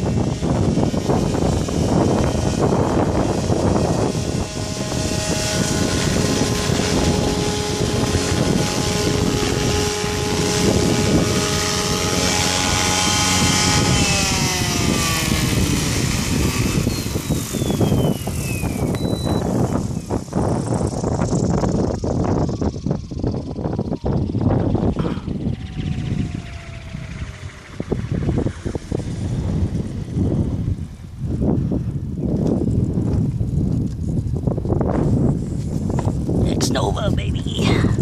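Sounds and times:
rc helicopter rotor and motor whine: 0:00.0 - 0:38.0.

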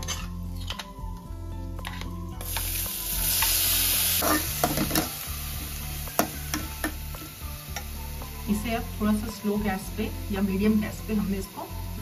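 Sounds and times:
metal spoon scraping a pan: 0:00.0 - 0:00.9, 0:04.2 - 0:05.2
vegetables sizzling in hot oil: 0:02.4 - 0:12.0.

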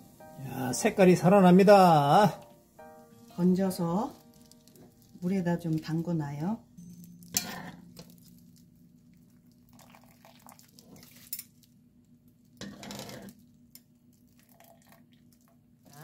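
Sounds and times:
steady low hum: 0:04.0 - 0:10.0
water sloshing and dripping: 0:08.0 - 0:11.8, 0:13.9 - 0:16.0.

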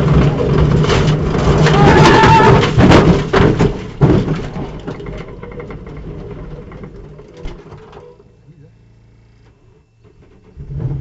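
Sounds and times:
car crashing: 0:00.0 - 0:08.2
faint rattles and clicks: 0:00.0 - 0:08.3.

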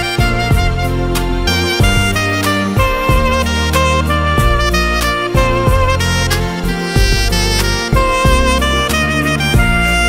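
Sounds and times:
instrumental music with beat: 0:00.0 - 0:10.0.

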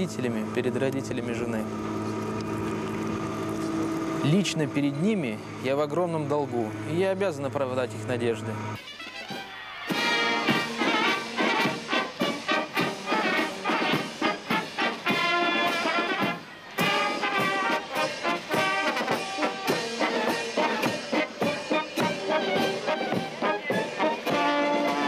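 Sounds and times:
military brass band march: 0:08.8 - 0:25.0.

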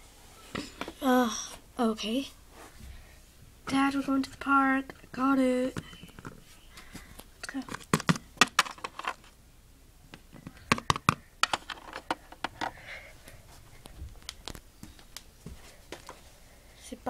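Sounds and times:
plastic toys clicking and tapping: 0:07.4 - 0:09.3, 0:10.4 - 0:12.8.

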